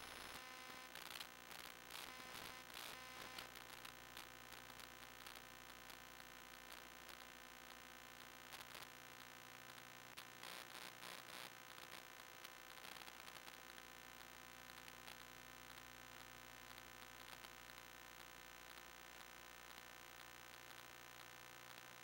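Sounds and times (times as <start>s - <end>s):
faint crackles: 0.0s - 22.0s
faint electrical hum: 0.0s - 22.0s.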